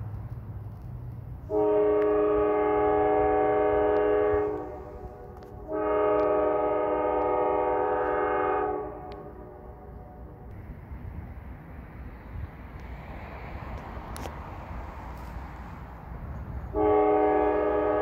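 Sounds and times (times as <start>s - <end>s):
locomotive air horn blasts: 1.5s - 10.5s, 16.7s - 18.0s.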